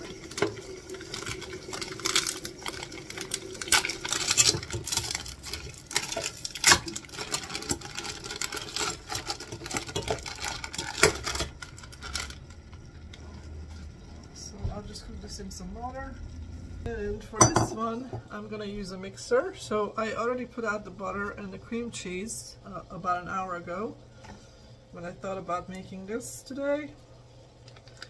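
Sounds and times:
frozen chunks knocking in a pot: 0.0s - 12.5s.

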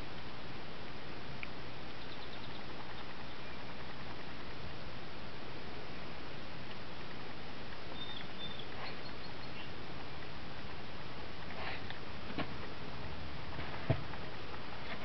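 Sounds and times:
steady hiss: 0.0s - 15.0s
faint high squeak: 7.9s - 9.7s.

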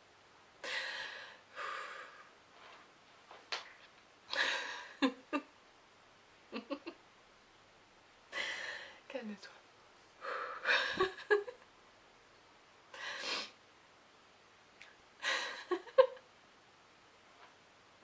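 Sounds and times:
woman laughing quietly: 4.3s - 5.5s, 6.5s - 7.0s, 10.2s - 11.7s, 15.2s - 16.3s.

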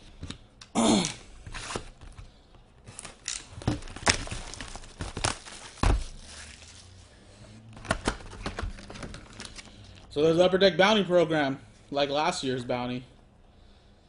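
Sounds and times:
plastic shrink-wrap tearing: 3.1s - 7.0s.

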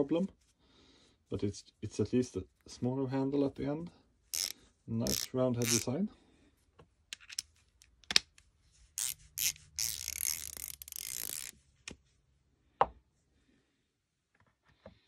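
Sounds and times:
ratchet clicking: 4.4s - 5.9s, 9.0s - 11.5s.

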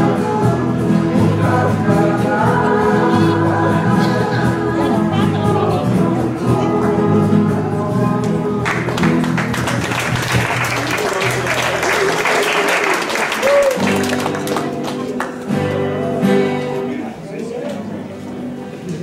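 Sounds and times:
choir singing: 0.0s - 9.4s
guitars and steel guitar: 0.0s - 10.6s, 13.7s - 19.0s
applause: 8.6s - 15.9s.

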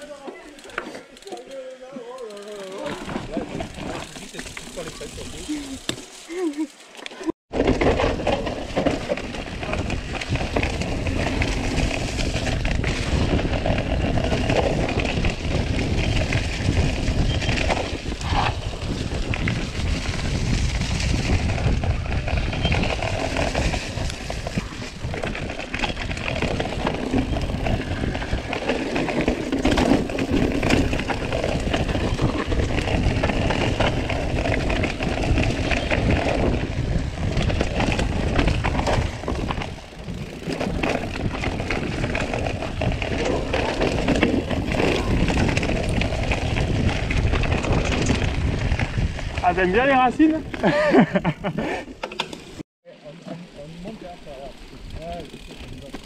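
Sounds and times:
bike rattling and clicking: 0.0s - 52.6s, 53.2s - 56.0s
rolling tyres rumble: 2.2s - 56.0s
wind on microphone: 9.2s - 51.8s.

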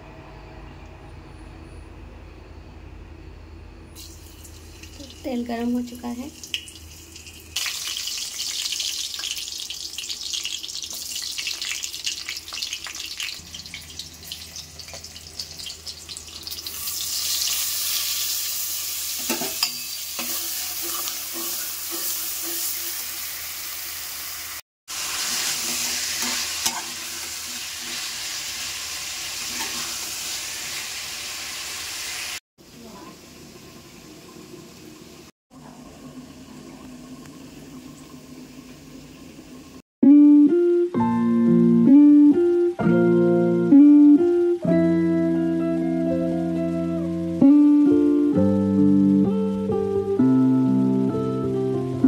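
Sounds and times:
onions sizzling in hot oil: 4.0s - 36.6s.

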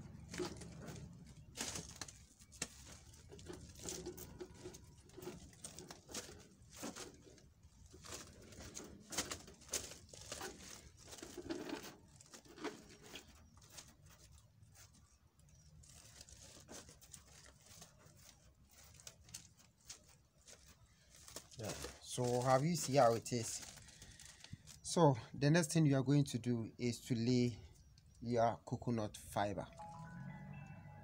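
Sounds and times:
plastic mesh rustling and clicking: 0.0s - 24.8s.

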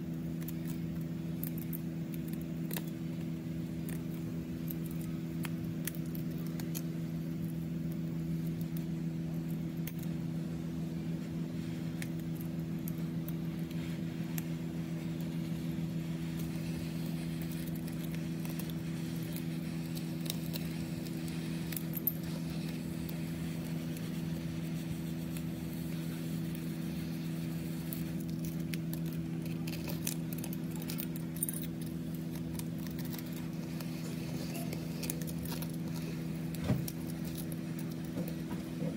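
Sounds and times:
low electrical hum: 0.0s - 38.9s.

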